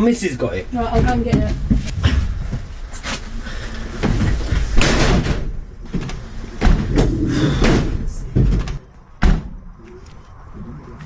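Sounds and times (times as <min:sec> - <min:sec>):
doors and metal fittings rattling: 0:00.8 - 0:09.6.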